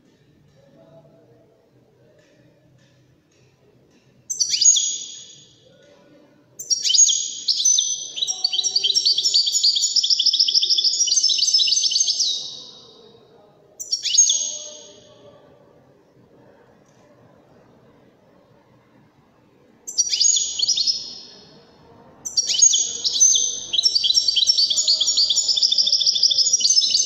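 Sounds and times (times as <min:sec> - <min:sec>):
goldfinch singing: 0:06.6 - 0:12.8, 0:19.9 - 0:21.4, 0:22.3 - 0:27.0.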